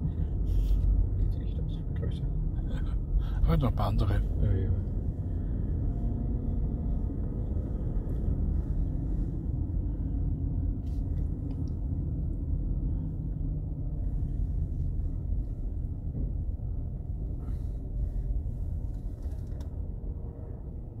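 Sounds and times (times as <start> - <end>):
car engine and tyres rumbling: 0.0 - 21.0.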